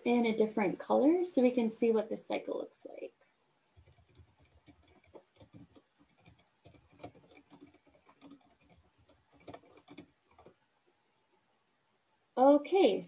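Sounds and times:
faint keyboard typing: 3.7 - 10.6.

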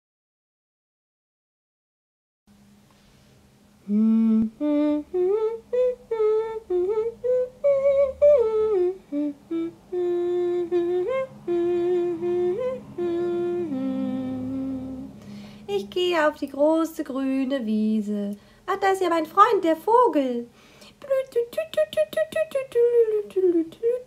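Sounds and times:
faint low drone: 3.8 - 15.7
person humming a melody: 3.8 - 15.9, 21.0 - 24.0.

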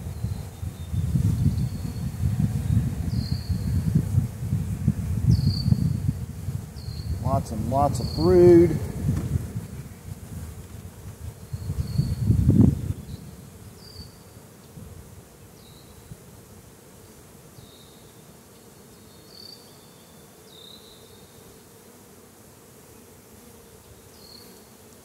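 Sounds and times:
wind buffeting microphone: 0.0 - 13.9
honeybees buzzing: 0.0 - 25.0.

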